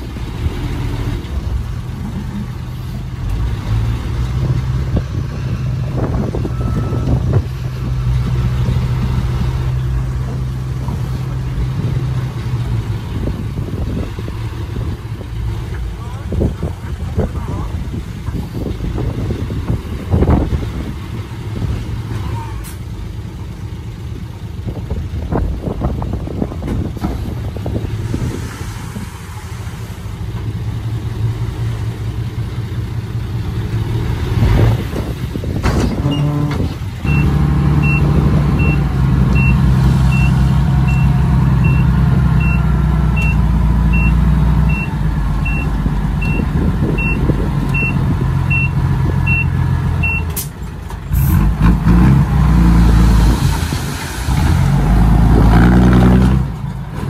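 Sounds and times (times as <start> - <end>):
diesel machinery engine running: 0.0 - 57.0
backup alarm beeping: 37.1 - 42.6, 43.2 - 50.3.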